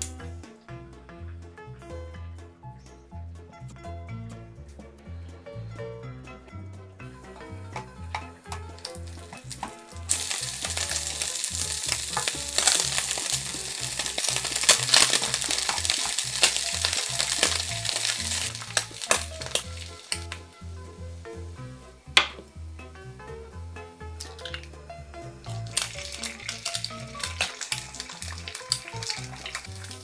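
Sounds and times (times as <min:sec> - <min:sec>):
meat sizzling in hot oil: 0:08.1 - 0:22.0, 0:24.2 - 0:24.6, 0:25.3 - 0:30.0.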